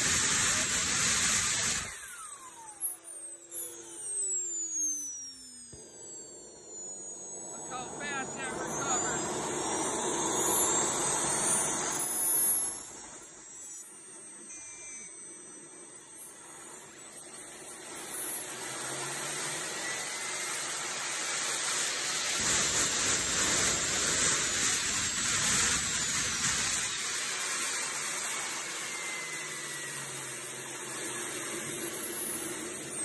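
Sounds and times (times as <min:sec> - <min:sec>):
jet turbine whine: 0:00.0 - 0:33.0
rushing hiss: 0:21.5 - 0:29.1.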